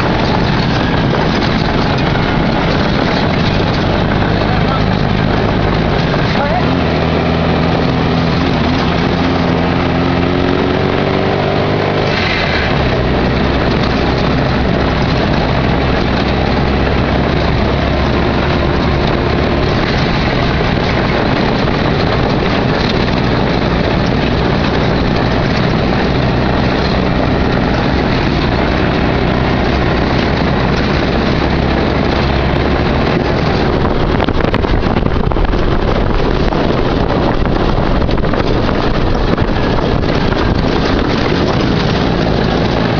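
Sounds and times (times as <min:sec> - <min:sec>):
rattle of driving over rocky ground: 0:00.0 - 0:42.9
vehicle engine accelerating: 0:00.0 - 0:42.9.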